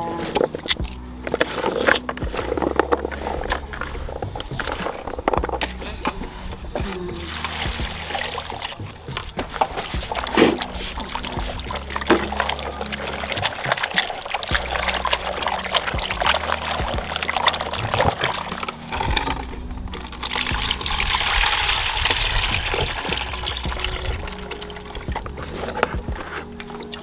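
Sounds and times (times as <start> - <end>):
small splashes: 7.1 - 27.0
water pouring into basin: 7.2 - 27.0.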